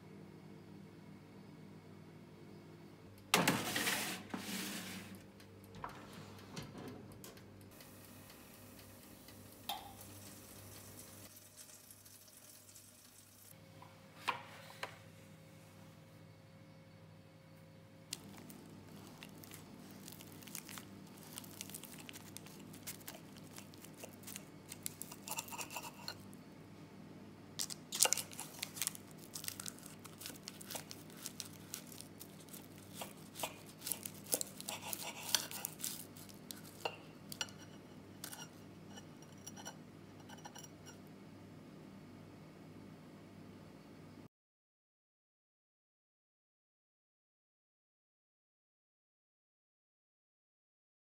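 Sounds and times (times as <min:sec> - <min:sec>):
pastry crust crunching: 0:18.1 - 0:26.3, 0:27.6 - 0:40.6
cutlery clinking on plate: 0:36.7 - 0:41.0.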